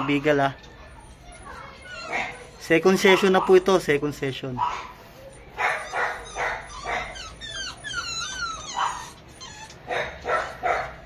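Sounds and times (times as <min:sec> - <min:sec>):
dog whining: 0:00.0 - 0:03.6, 0:04.9 - 0:11.0
dog panting: 0:04.6 - 0:11.0.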